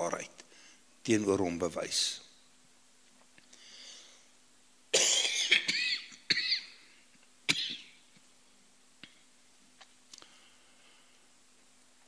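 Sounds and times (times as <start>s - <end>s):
faint breath in: 3.5s - 4.4s, 10.2s - 11.4s
man coughing: 4.9s - 6.8s.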